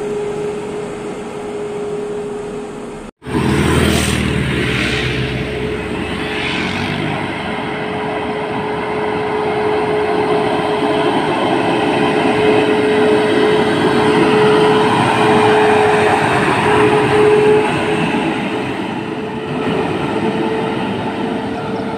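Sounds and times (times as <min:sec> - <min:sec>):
steady tone: 0:00.0 - 0:10.6
truck diesel engine and tyres: 0:00.0 - 0:21.9
motorcycle passing: 0:03.2 - 0:10.2.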